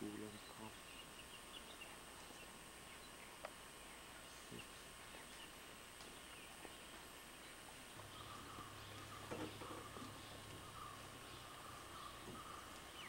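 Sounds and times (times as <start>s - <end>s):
faint outdoor hiss: 0.0s - 13.0s
low steady hum: 0.0s - 13.0s
small ticks: 3.4s - 3.6s, 4.5s - 7.0s, 7.7s - 13.0s.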